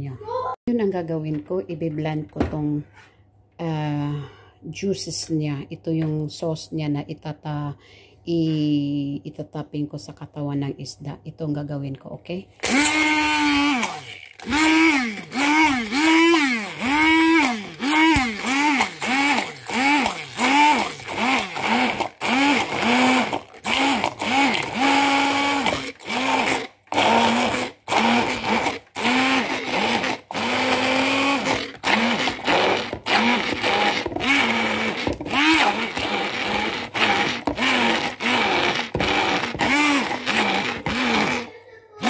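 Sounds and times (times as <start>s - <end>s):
stick blender motor whine: 12.6s - 41.5s.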